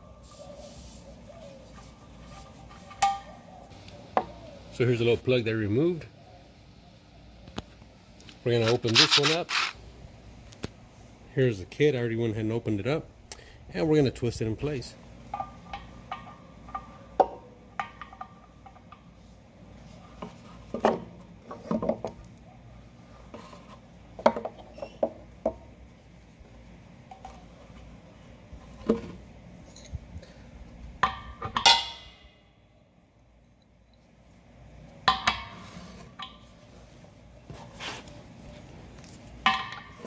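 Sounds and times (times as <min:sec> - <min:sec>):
metal fitting and hose clinking: 0:01.8 - 0:03.4, 0:29.6 - 0:30.1.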